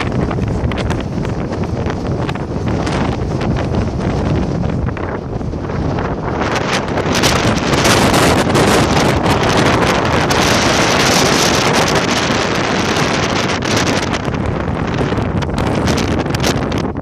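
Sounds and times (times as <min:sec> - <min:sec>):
wind blowing across microphone: 0:00.0 - 0:17.0.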